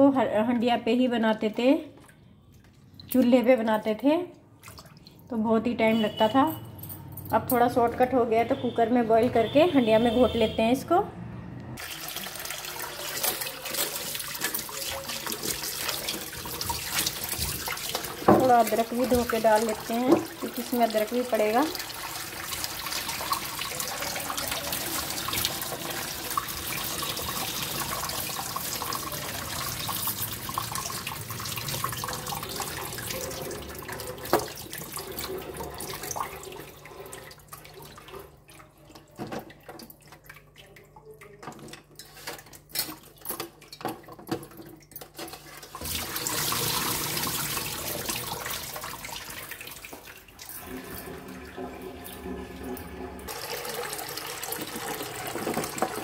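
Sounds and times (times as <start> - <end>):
tap running into bowl of water: 49.8 - 56.0.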